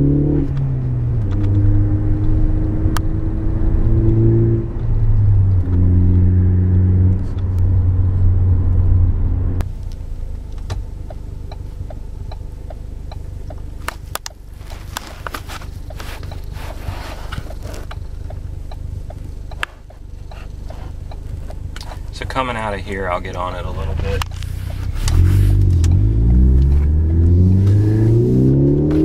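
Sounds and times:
car engine shifting gears: 0.0s - 29.0s
low engine hum: 0.0s - 29.0s
light ticking: 9.8s - 14.4s, 17.4s - 21.9s.

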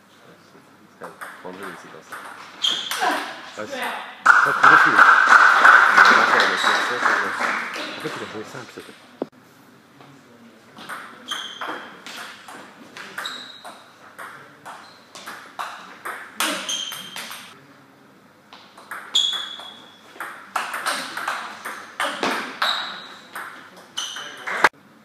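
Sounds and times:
table tennis ball hits: 4.3s - 8.3s, 10.8s - 17.6s, 18.6s - 24.7s.

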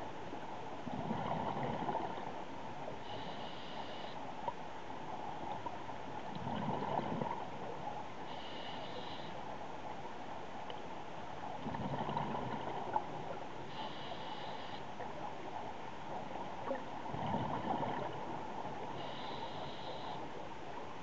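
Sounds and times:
steady underwater hiss: 0.0s - 21.0s
regulator hissing inhale: 3.0s - 4.2s, 8.3s - 9.4s, 13.7s - 14.9s, 18.9s - 20.2s
bubbling exhales: 11.6s - 13.0s.

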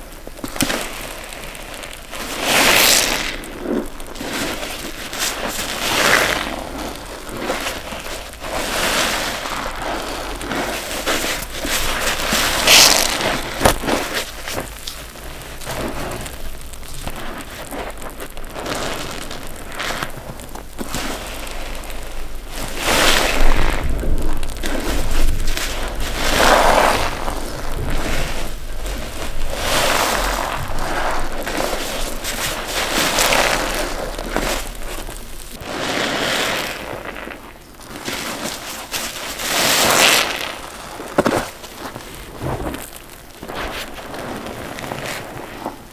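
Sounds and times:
water pouring and dripping: 0.0s - 35.7s
wet sponge squelching: 0.0s - 45.9s.

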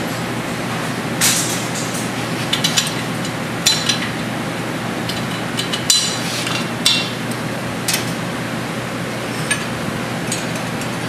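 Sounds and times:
steady shop hum: 0.0s - 11.0s.

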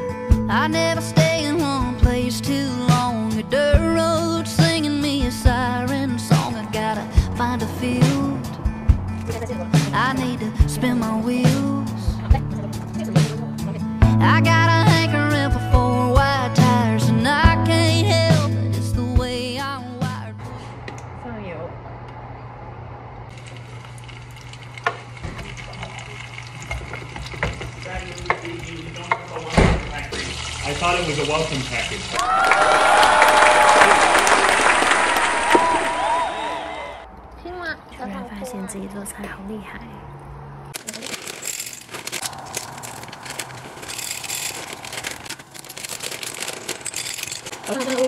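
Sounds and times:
oil frying in a pot: 23.3s - 32.2s
plastic packaging crinkling: 40.8s - 48.0s.

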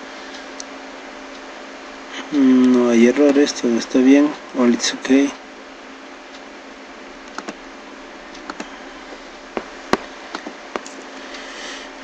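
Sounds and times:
faint hum: 0.0s - 12.0s
mouse and keyboard clicks: 7.3s - 7.6s, 8.4s - 8.7s.

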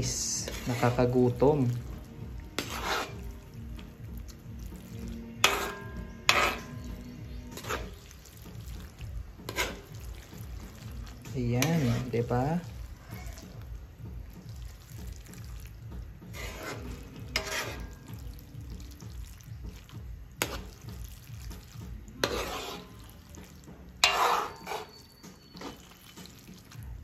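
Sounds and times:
spoon scraping in wok: 0.0s - 27.0s
spoon clinking against pan: 5.4s - 8.0s, 24.0s - 26.4s.

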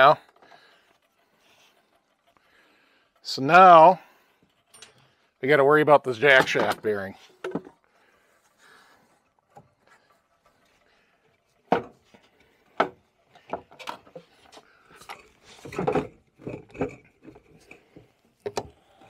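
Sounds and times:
metal knocks and clicks: 6.2s - 7.8s, 15.0s - 18.8s.

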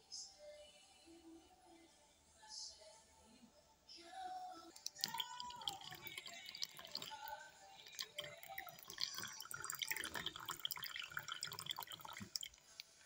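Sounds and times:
water trickling into a bowl: 4.8s - 13.0s.

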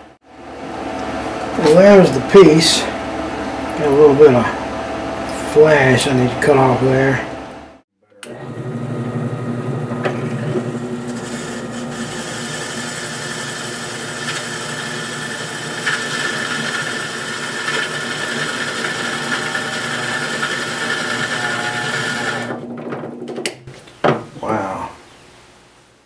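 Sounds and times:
drill press cutting metal: 9.9s - 22.7s.

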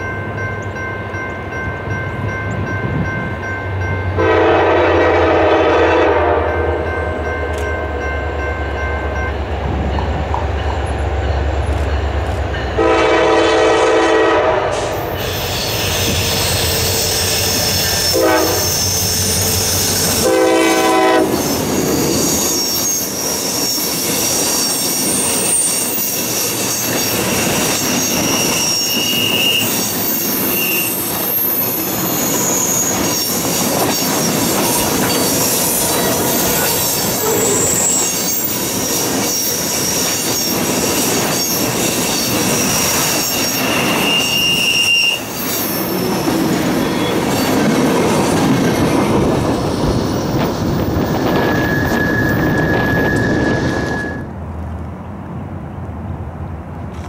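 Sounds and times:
diesel locomotive rumbling: 0.0s - 57.0s
train horn blasts: 4.2s - 7.0s, 12.8s - 19.2s, 20.0s - 21.5s
high-pitched wheel squeals: 15.0s - 47.7s, 50.7s - 54.3s.

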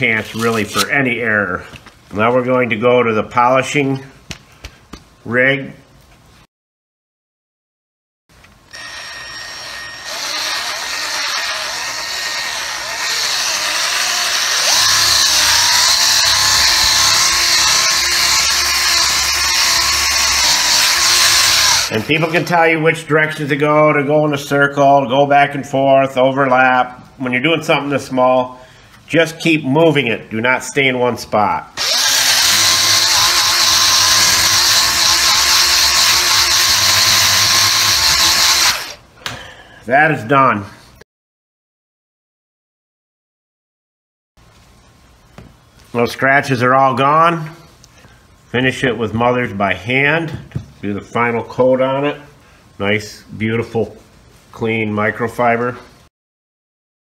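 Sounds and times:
electric polisher whine: 8.7s - 21.9s.

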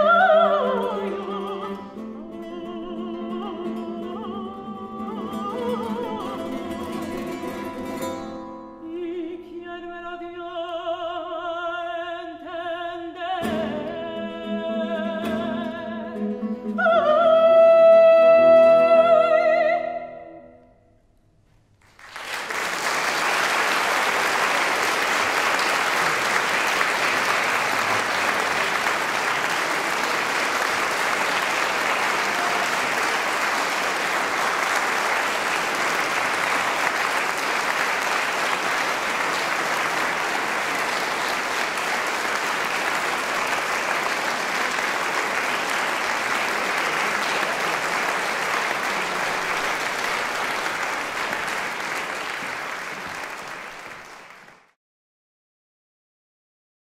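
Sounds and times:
audience applauding: 21.8s - 54.8s.

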